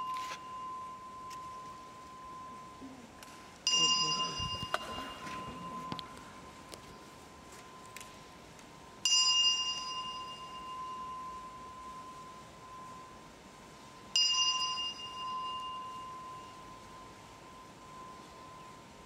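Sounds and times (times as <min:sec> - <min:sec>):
bell ringing: 0:00.0 - 0:06.7, 0:09.0 - 0:13.3, 0:14.1 - 0:18.8.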